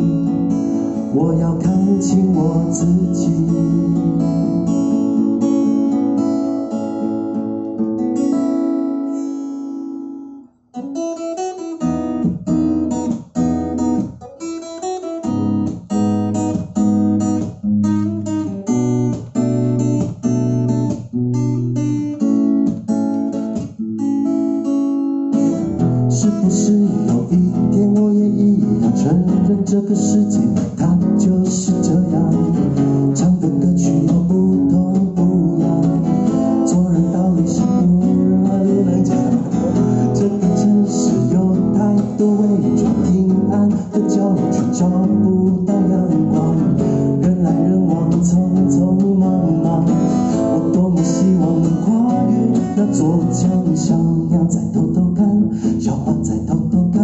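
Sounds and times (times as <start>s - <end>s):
acoustic guitar strumming: 0.0s - 57.0s.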